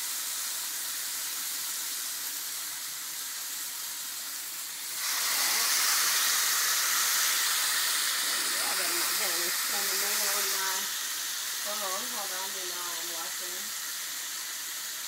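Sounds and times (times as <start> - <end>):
chicken sizzling in oil: 0.0 - 15.0.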